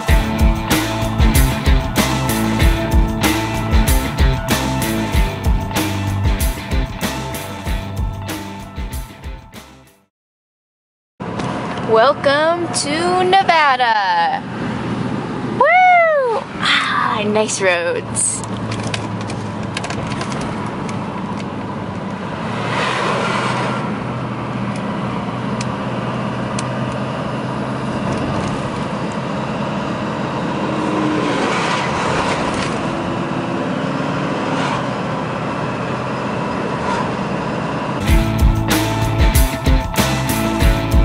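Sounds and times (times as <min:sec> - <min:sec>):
low engine hum: 0:00.0 - 0:09.2, 0:17.6 - 0:41.0
tyre and road noise: 0:11.2 - 0:39.8.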